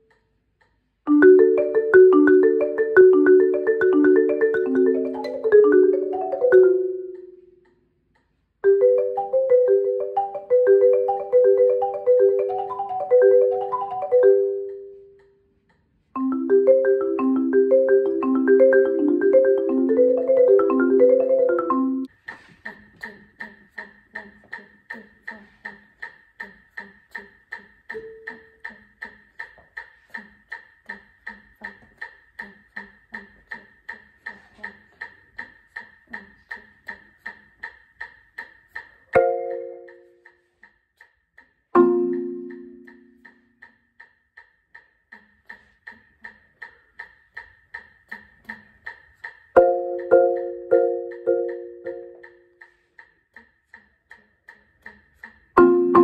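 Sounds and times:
marimba chords ringing: 0:01.1 - 0:07.4, 0:08.6 - 0:15.0, 0:16.2 - 0:22.1, 0:39.2 - 0:40.2, 0:41.8 - 0:43.2, 0:49.6 - 0:52.6, 0:55.6 - 0:56.0
marimba run of notes: 0:01.1 - 0:07.5, 0:08.6 - 0:15.0, 0:16.2 - 0:22.1, 0:39.2 - 0:40.2, 0:41.8 - 0:43.5, 0:49.6 - 0:52.6, 0:55.6 - 0:56.0
metronome ticking: 0:01.1 - 0:07.8, 0:08.6 - 0:15.4, 0:16.2 - 0:22.1, 0:26.4 - 0:56.0.

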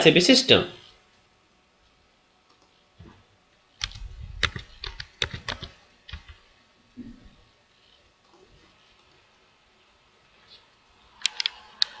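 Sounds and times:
keyboard and mouse clicking: 0:03.8 - 0:06.4, 0:11.2 - 0:12.0.

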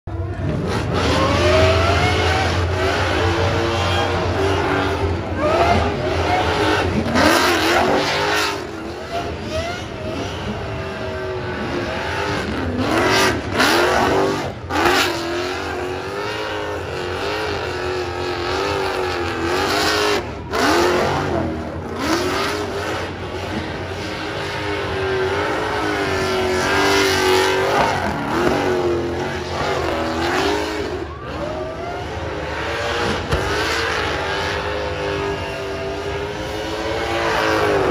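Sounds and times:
tyres spinning in a burnout: 0:00.1 - 0:37.9
car engine revving hard: 0:00.3 - 0:37.9.

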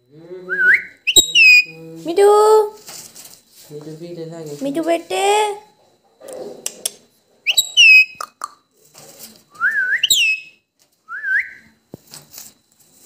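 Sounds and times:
parakeet whistled calls: 0:00.8 - 0:01.8, 0:07.5 - 0:08.2, 0:10.0 - 0:10.6.

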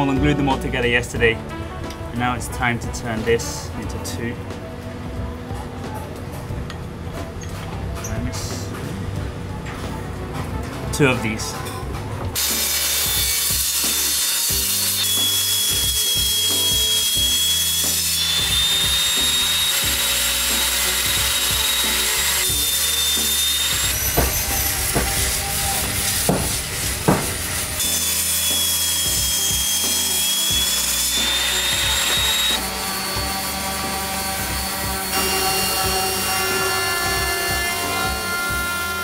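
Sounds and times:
table saw cutting wood: 0:12.4 - 0:39.0
sharp knocks: 0:23.9 - 0:27.6.

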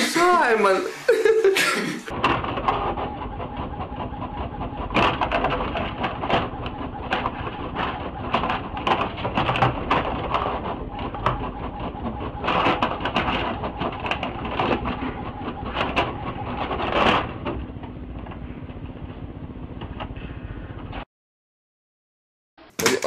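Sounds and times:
printer whirring and clicking: 0:02.1 - 0:20.1.

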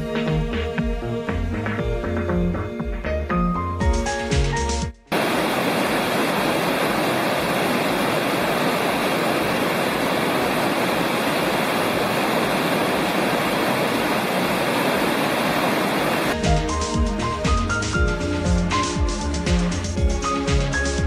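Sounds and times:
mountain stream rushing: 0:05.1 - 0:16.4.

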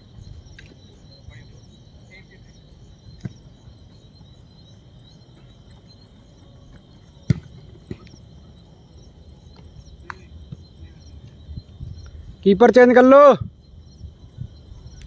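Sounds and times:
crickets chirping: 0:00.0 - 0:15.0
football kicked thud: 0:03.2 - 0:03.4, 0:07.2 - 0:08.1.

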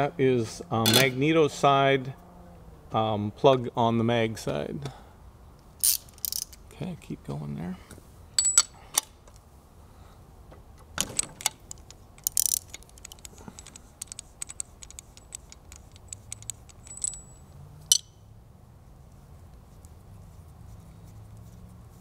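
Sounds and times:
metal socket clinks and knocks: 0:00.8 - 0:01.2, 0:05.8 - 0:06.6, 0:08.4 - 0:09.1, 0:11.0 - 0:18.1.

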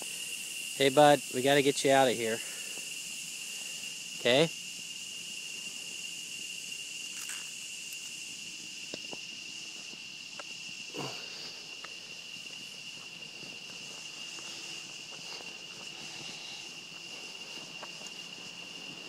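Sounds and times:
insects chorus: 0:00.0 - 0:19.0
faint footsteps and scuffs: 0:11.7 - 0:19.0.

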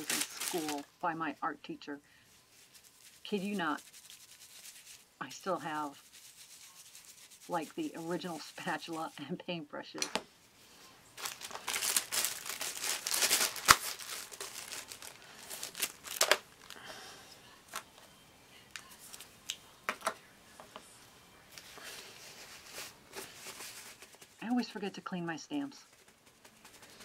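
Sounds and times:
wipe crumpling and rustling: 0:00.0 - 0:01.0, 0:02.3 - 0:09.3, 0:10.7 - 0:16.9, 0:21.5 - 0:24.8.

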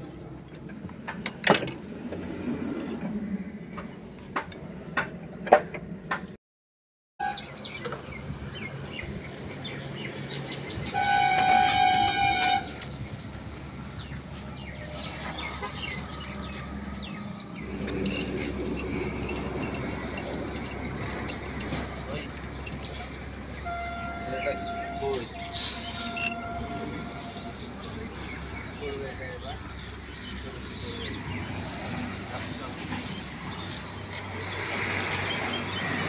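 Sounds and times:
vehicle horn: 0:10.8 - 0:12.8, 0:23.5 - 0:27.7.

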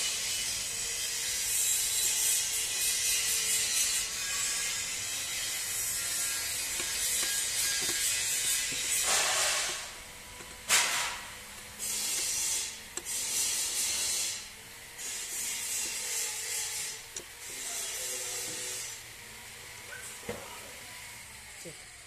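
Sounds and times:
ratchet wrench clicking: 0:01.6 - 0:10.6, 0:11.8 - 0:14.4, 0:15.0 - 0:18.1.

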